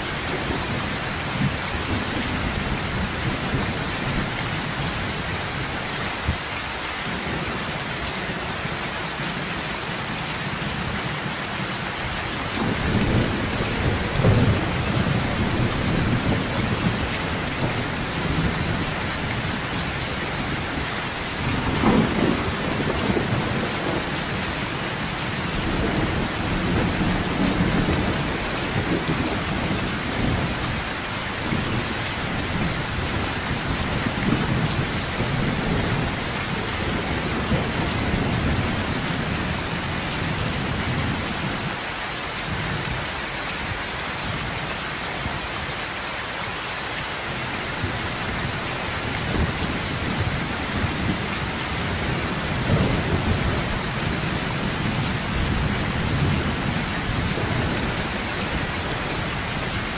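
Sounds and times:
heavy rain on a metal roof: 0.0s - 59.9s
thunder rumbling: 12.5s - 41.2s, 49.0s - 59.9s.

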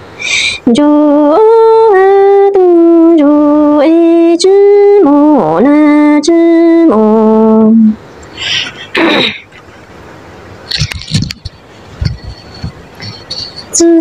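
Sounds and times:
woman singing a lament: 13.7s - 14.0s.

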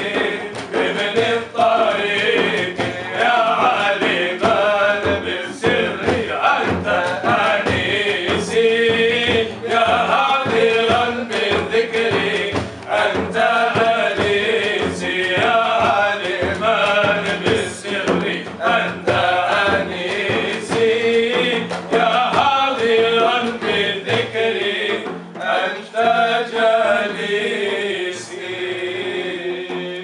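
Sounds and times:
frame drum beat: 0.0s - 30.0s
men singing together: 0.0s - 30.0s.

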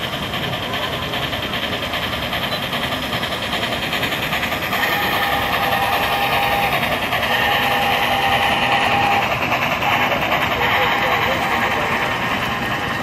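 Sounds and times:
model train running: 0.0s - 13.0s
steady tone: 4.6s - 13.0s.

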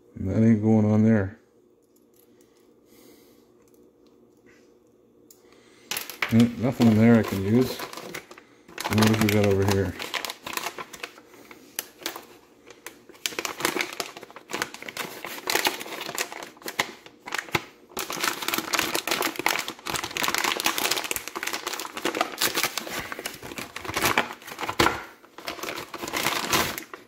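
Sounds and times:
package crinkling and rustling: 5.9s - 27.0s.

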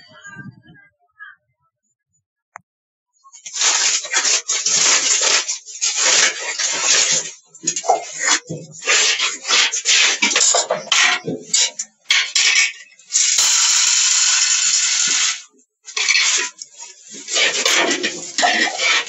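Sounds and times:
grain pouring hiss: 3.4s - 11.1s, 13.1s - 19.0s
plastic cup and pots clattering: 3.4s - 13.4s, 15.9s - 19.0s.

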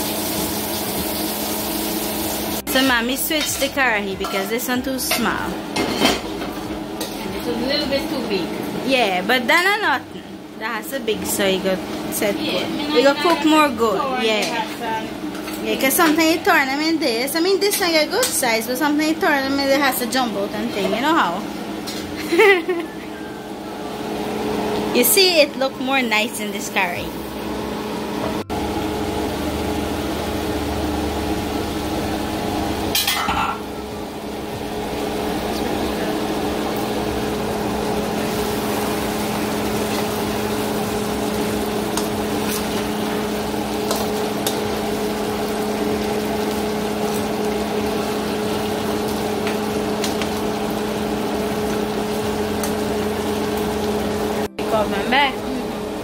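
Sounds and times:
machine hum: 18.6s - 56.0s
sauce simmering: 36.2s - 54.5s.

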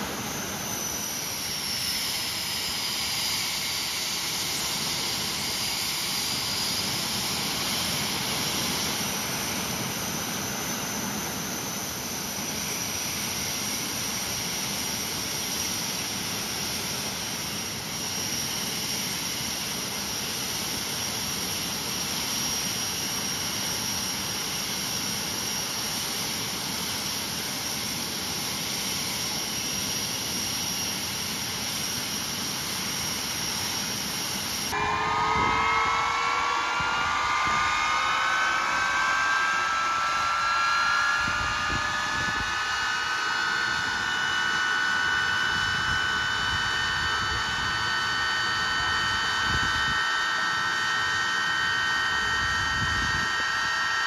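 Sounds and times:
jet engine running: 0.0s - 54.0s
whining tones climbing in pitch: 34.7s - 54.0s.

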